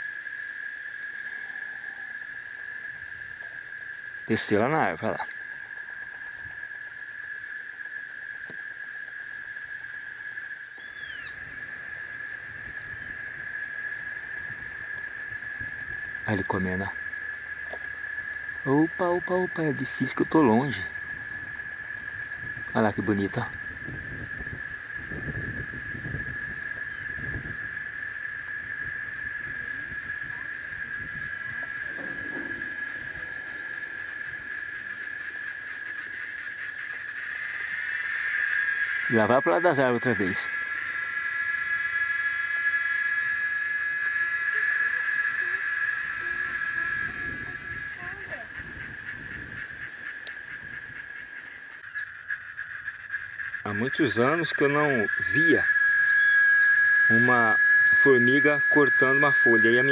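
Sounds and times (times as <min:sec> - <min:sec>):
insects droning: 0:00.0 - 0:59.9
bird call sweeping downward: 0:09.8 - 0:11.4, 0:29.8 - 0:36.3, 0:51.4 - 0:52.1, 0:54.1 - 0:59.9
faint high chirps: 0:29.5 - 0:35.3, 0:54.1 - 0:59.9.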